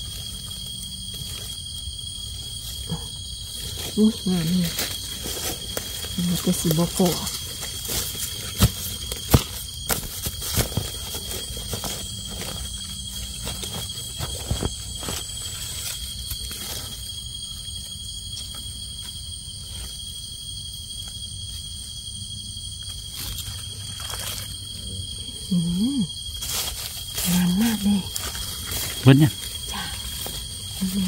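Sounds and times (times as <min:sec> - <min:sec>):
leaf litter rustling: 0:00.0 - 0:17.2, 0:23.0 - 0:25.1, 0:26.2 - 0:31.0
insects droning: 0:00.0 - 0:31.0.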